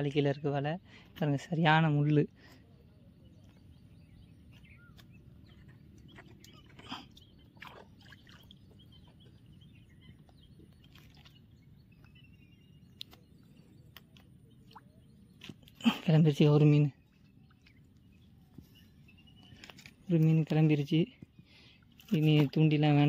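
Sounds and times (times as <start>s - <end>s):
faint chirps and clicks: 3.2s - 15.8s, 17.0s - 20.4s.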